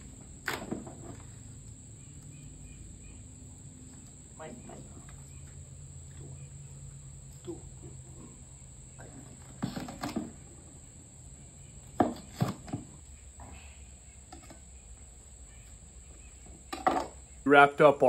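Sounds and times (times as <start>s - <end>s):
post-hole digger knocks and scrapes: 11.9s - 13.0s.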